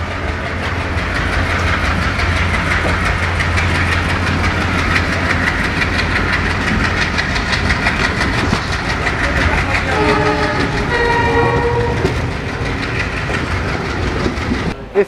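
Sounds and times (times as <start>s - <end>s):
diesel locomotive engine drone: 0.0s - 15.0s
rail and wheel noise: 0.0s - 15.0s.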